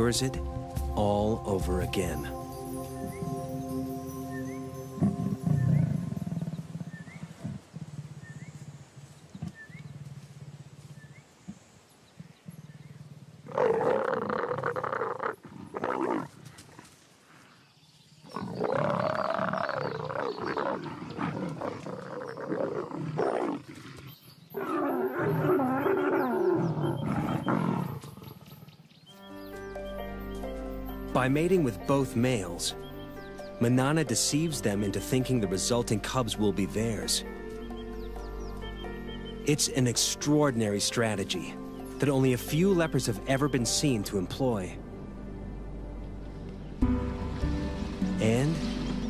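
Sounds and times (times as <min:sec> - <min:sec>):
leopards growling: 0:05.0 - 0:11.0, 0:12.9 - 0:17.5, 0:18.3 - 0:28.8.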